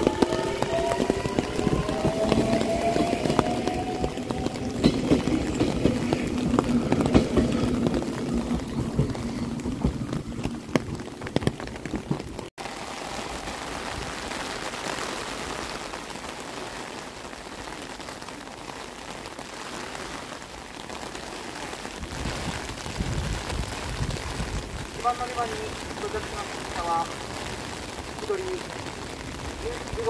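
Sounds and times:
electric train moving away: 0.0s - 10.8s
train wheels clicking on rails: 0.0s - 12.5s
steady rain: 0.0s - 30.0s.

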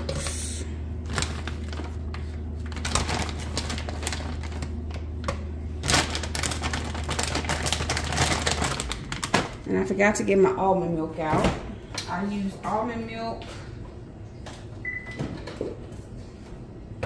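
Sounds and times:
low steady hum: 0.0s - 17.0s
plastic bag crinkling: 1.0s - 5.0s, 5.8s - 9.7s.

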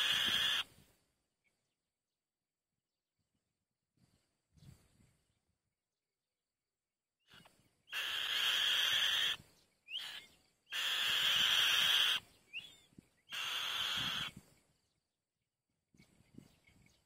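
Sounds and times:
raspy hissing bird screams: 0.0s - 0.7s, 7.9s - 9.4s, 10.0s - 12.2s, 13.3s - 14.3s.

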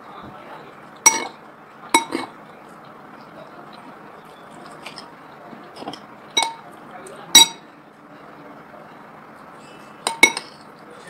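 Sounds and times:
metal spoon clinking on bowl: 1.0s - 1.4s, 2.0s - 2.3s, 5.8s - 6.6s, 7.4s - 7.6s, 10.1s - 10.6s.

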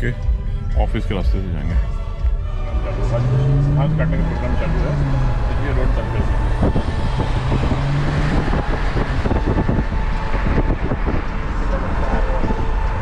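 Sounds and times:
road rumble: 0.0s - 13.0s
wind buffeting microphone: 3.8s - 13.0s.

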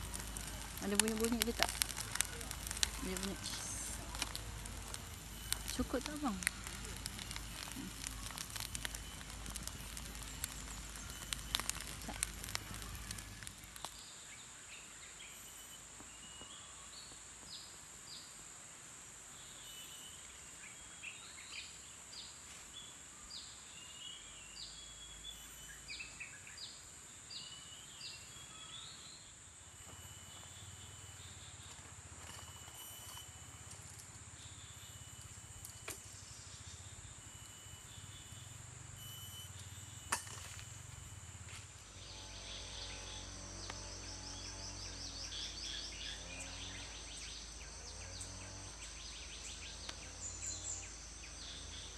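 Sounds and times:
campfire crackling: 0.0s - 14.4s, 29.7s - 42.0s
birds chirping: 0.0s - 16.5s
high insect drone: 0.0s - 51.9s.

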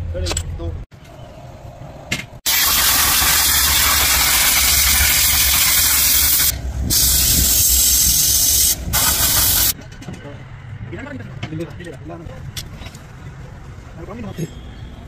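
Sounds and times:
high-pressure jet hissing: 2.5s - 9.8s.

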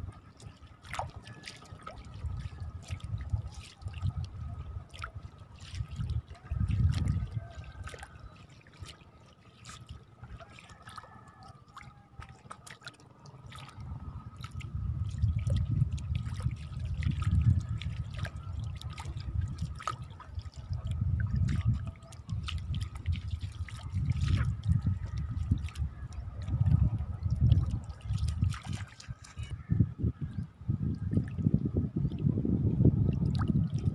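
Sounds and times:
water trickling and dripping: 0.0s - 33.9s
squelching steps through mud: 4.9s - 20.9s, 21.5s - 29.6s
low rumbling gusts: 13.8s - 17.9s, 23.9s - 28.5s, 29.4s - 33.9s.

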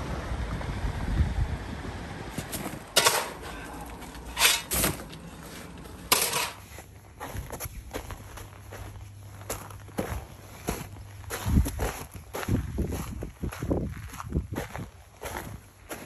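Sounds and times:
wind: 0.0s - 16.0s
shovel scraping sand: 2.4s - 6.8s.

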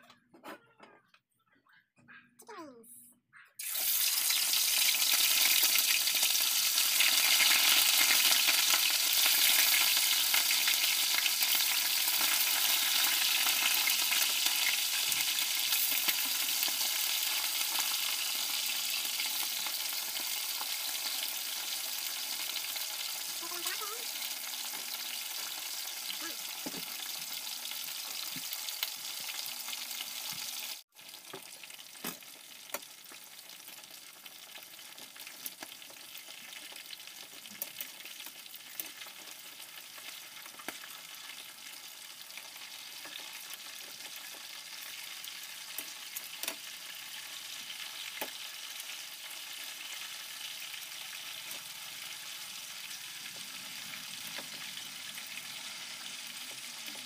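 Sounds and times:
chicken sizzling in oil: 3.6s - 57.0s.

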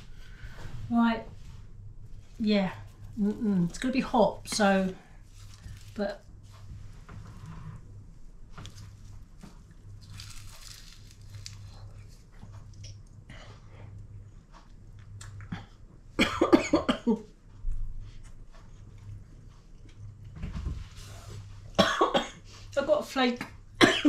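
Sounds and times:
woman chewing pastry: 8.6s - 16.1s, 18.2s - 20.3s
woman coughing: 16.2s - 17.3s, 21.8s - 22.4s, 23.8s - 24.0s.

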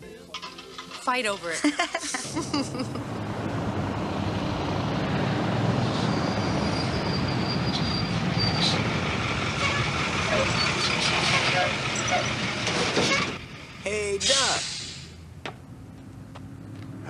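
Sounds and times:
diesel trucks rumbling: 0.0s - 17.0s
high-pitched squeal: 5.8s - 13.4s.

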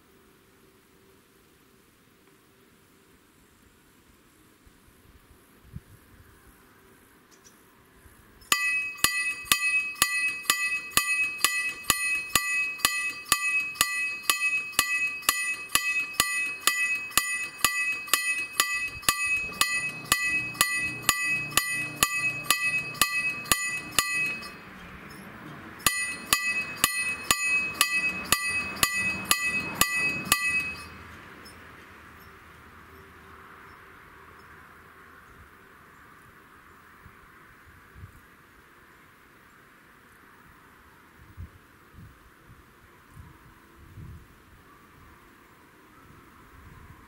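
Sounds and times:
level crossing warning bell: 8.5s - 31.6s
low motor hum: 8.6s - 31.0s.

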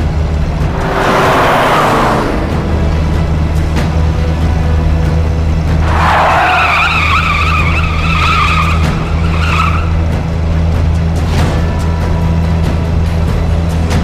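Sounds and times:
car engine drone: 0.0s - 14.0s
car tyres squealing: 0.1s - 11.2s.

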